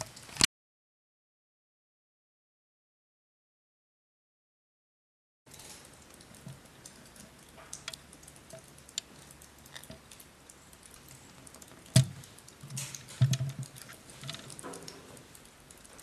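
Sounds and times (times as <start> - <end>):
small clicks and ticks: 0.0 - 0.5, 5.5 - 16.0.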